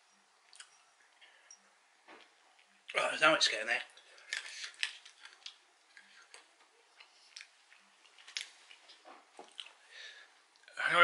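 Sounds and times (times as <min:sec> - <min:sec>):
person chewing peanuts: 0:00.4 - 0:01.3, 0:04.0 - 0:10.7.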